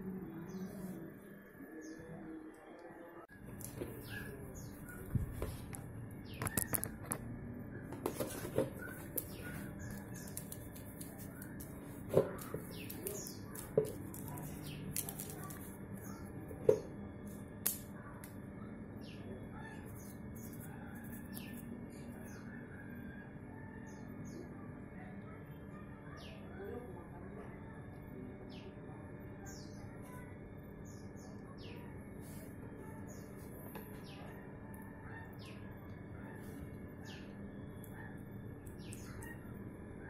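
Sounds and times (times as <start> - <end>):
birds chirping: 0.0 - 17.0, 27.9 - 40.0.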